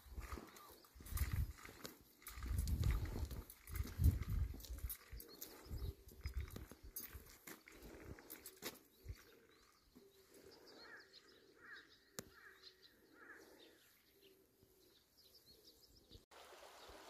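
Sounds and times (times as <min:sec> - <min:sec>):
faint bird calls: 0:04.9 - 0:16.1.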